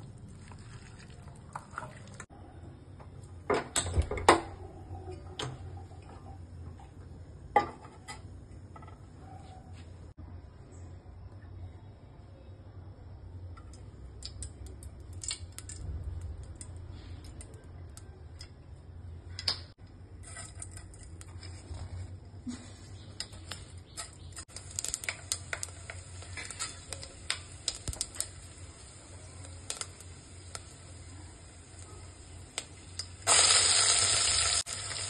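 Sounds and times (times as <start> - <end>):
oil crackling and popping: 13.6 - 18.6, 23.1 - 35.0.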